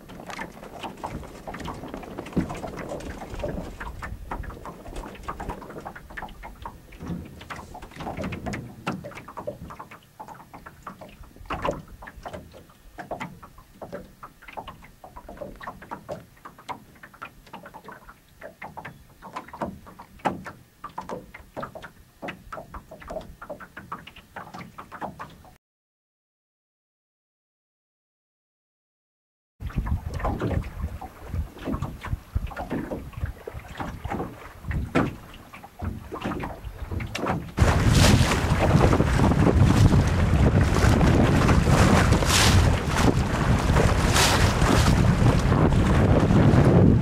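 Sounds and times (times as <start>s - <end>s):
waves splashing against a hull: 0.0s - 25.6s, 29.6s - 47.0s.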